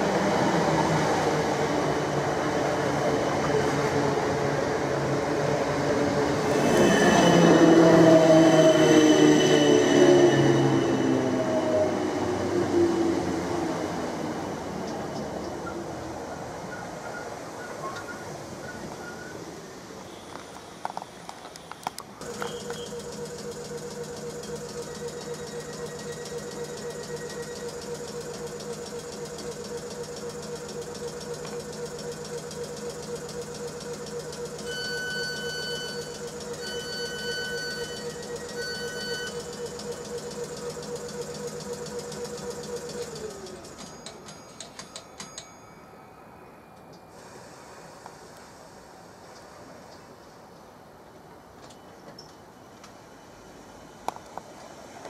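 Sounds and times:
electric train humming drone: 0:00.0 - 0:17.0, 0:22.1 - 0:49.7
short beeps: 0:22.3 - 0:23.2, 0:34.6 - 0:40.0.

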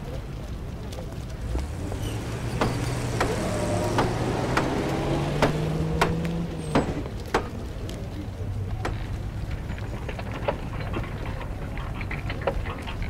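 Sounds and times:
sharp knocks: 0:02.6 - 0:07.6.

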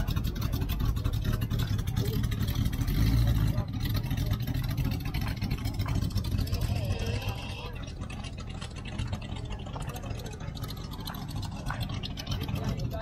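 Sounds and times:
faint crowd voices: 0:00.0 - 0:13.0
pickup engine rumbling: 0:00.0 - 0:13.0.

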